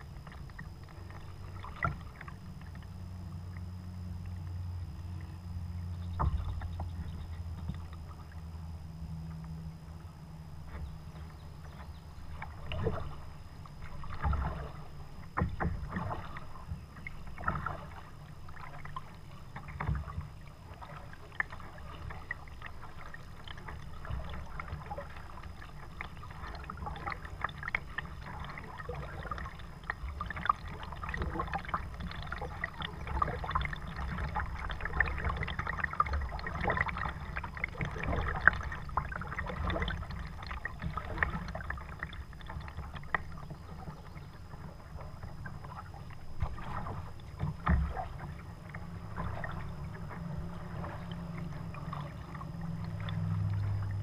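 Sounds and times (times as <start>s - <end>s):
paddle strokes splashing water: 0.0s - 5.4s, 6.0s - 8.6s, 10.5s - 54.0s
water dripping off paddle: 13.8s - 54.0s.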